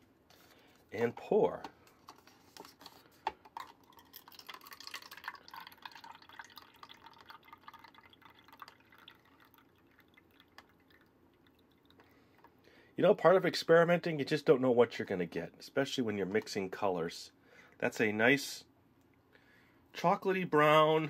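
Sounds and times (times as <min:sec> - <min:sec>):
drink trickling into paper cup: 0:02.1 - 0:12.1.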